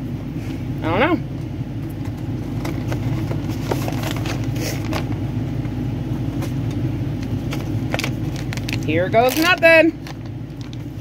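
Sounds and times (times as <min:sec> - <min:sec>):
low mechanical rumble: 0:00.0 - 0:11.0
cardboard box crinkling: 0:02.6 - 0:05.1, 0:07.5 - 0:10.9.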